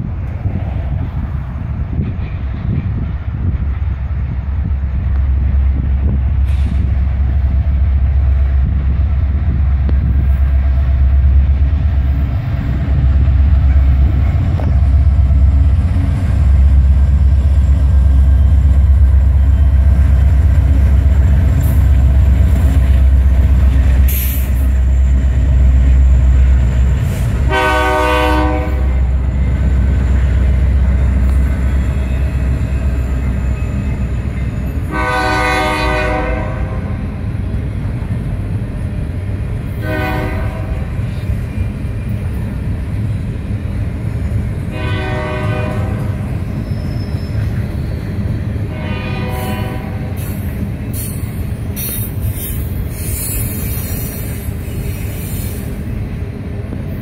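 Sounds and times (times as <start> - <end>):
freight train rumbling past: 0.0 - 57.0
locomotive air horn: 27.1 - 29.1, 34.9 - 37.2, 39.8 - 40.9, 44.7 - 46.2, 48.7 - 50.4.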